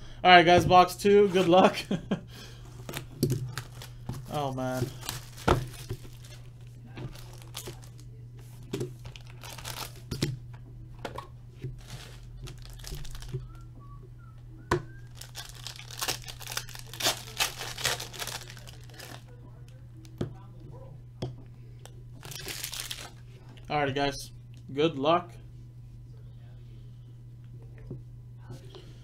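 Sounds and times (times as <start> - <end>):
low hum: 0.0 - 29.0
foil pack crinkling: 1.3 - 8.1, 8.9 - 10.2, 11.7 - 13.6, 15.0 - 19.8, 22.2 - 23.2
plastic wrap crackling: 2.7 - 8.1, 9.0 - 10.1, 11.8 - 13.6, 15.0 - 19.8, 22.2 - 23.2.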